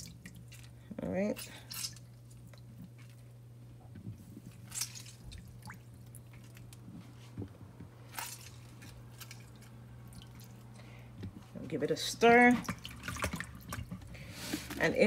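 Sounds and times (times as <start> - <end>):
steady low hum: 0.0 - 15.0
liquid dripping into bowl of water: 9.3 - 10.7.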